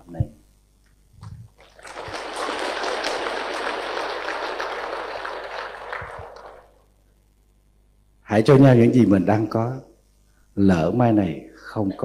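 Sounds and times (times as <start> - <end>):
audience applauding: 1.6 - 6.9.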